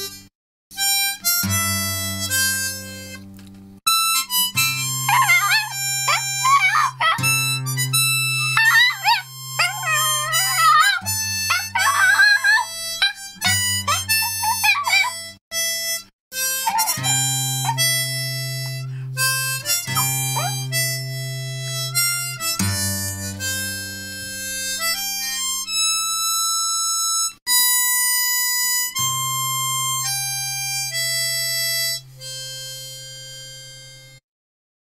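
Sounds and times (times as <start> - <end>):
harmonica melody: 0.0 - 34.2
strummed acoustic guitar: 1.1 - 11.8, 12.6 - 14.6, 15.6 - 25.6.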